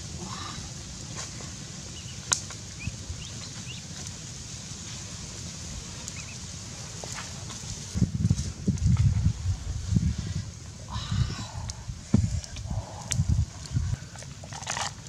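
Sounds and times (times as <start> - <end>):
fire crackling clicks: 0.6 - 10.8, 11.6 - 15.0
low rumble: 7.8 - 14.8.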